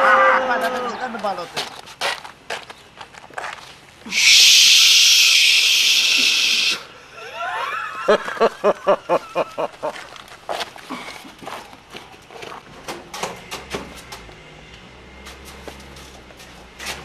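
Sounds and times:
loud steady hiss: 4.1 - 7.0
man laughing: 7.1 - 10.1.

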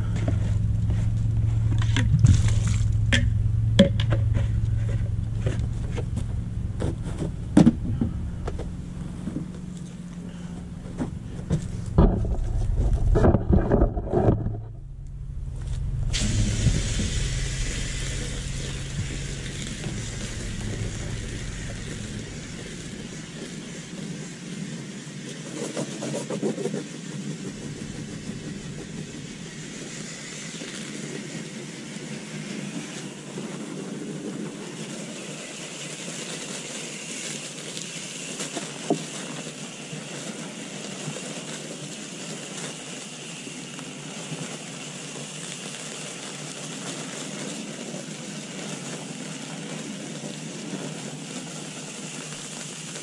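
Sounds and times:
hose water spraying: 0.0 - 13.1, 15.5 - 53.0
low rumble: 0.0 - 24.4, 27.3 - 30.4.

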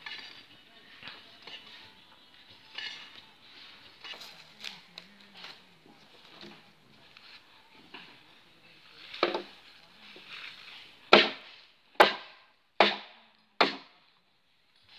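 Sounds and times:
sharp striking blows: 11.1 - 13.9.

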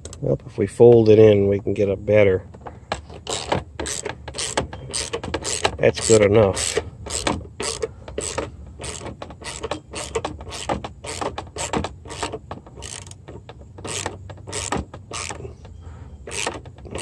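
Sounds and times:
socket ratchet clicking: 2.9 - 15.4, 16.2 - 17.0.

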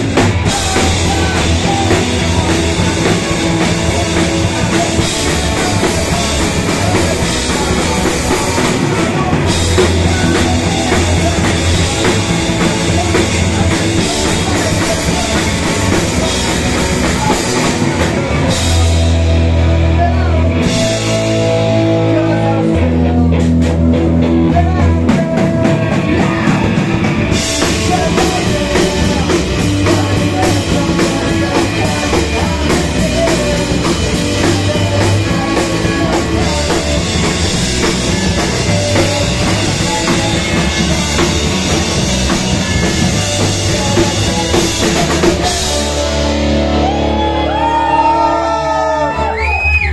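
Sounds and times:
bass guitar: 0.0 - 49.9
distorted electric guitar: 0.0 - 49.9
drum kit: 0.0 - 49.9.

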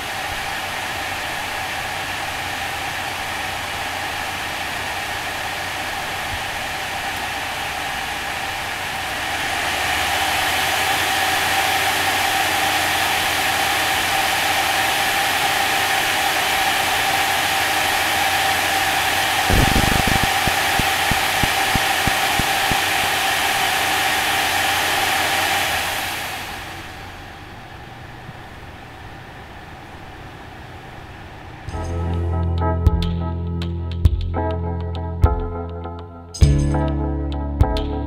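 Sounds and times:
cooling fan whine and air rush: 0.0 - 32.4
phone interference buzz: 19.5 - 22.8.

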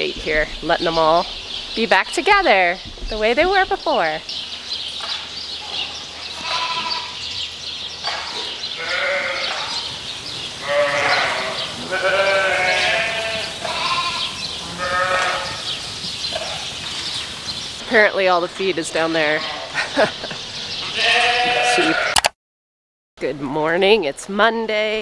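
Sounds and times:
sheep bleating: 6.4 - 7.2, 8.8 - 9.8, 10.6 - 16.7, 20.8 - 22.2.

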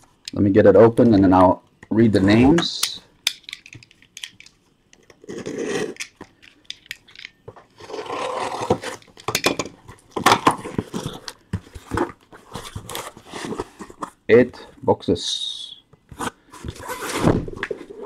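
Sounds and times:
cardboard scraping and rubbing: 5.2 - 6.0, 7.8 - 9.0, 10.5 - 14.2, 16.2 - 18.0.

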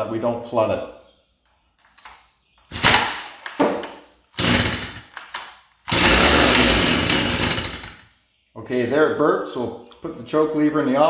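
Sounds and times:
recoil starter pulls: 4.4 - 8.0.

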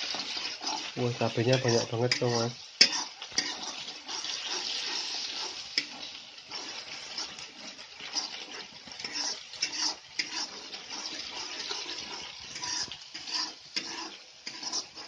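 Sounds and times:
spice paste sizzling in oil: 0.0 - 15.0.

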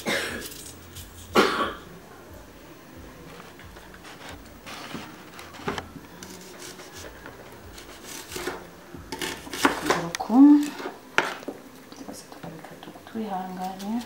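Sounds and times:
knife slicing onion on cutting board: 7.8 - 10.0.

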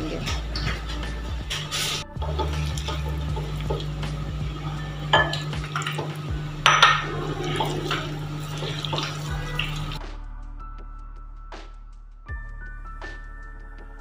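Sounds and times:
hands squishing wet batter: 0.0 - 4.8, 5.4 - 10.0
knocks against glass bowl: 5.2 - 6.0, 6.7 - 7.1.

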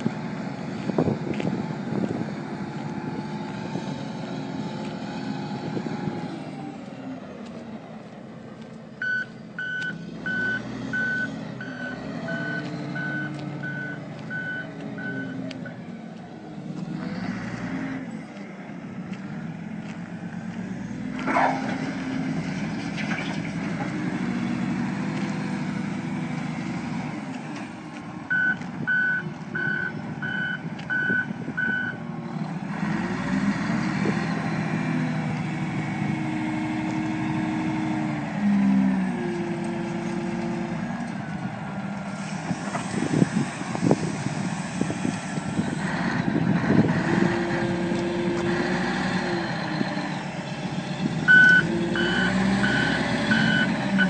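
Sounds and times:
diesel engine running: 0.0 - 54.0
reverse alarm beeping: 9.0 - 15.4, 28.3 - 32.0, 51.3 - 53.7.

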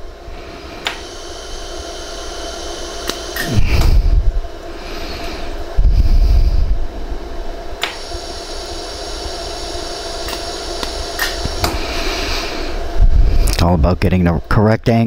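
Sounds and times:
welding machine hum: 0.0 - 14.6
laser welder snap: 0.8 - 4.0, 7.8 - 12.0
low rumble: 3.5 - 7.8, 11.5 - 14.4.

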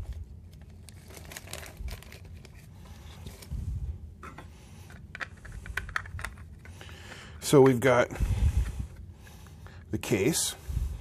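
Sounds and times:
plastic bag crinkling: 0.4 - 3.4.

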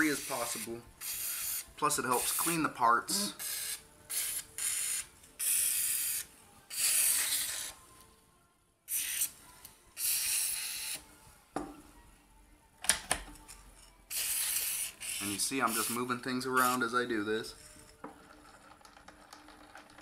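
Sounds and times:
aerosol spray hissing: 0.1 - 2.5.

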